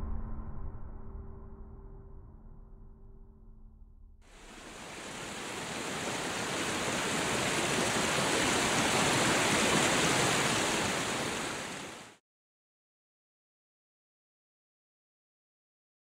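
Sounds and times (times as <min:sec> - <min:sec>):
rushing river water: 0:04.3 - 0:12.2.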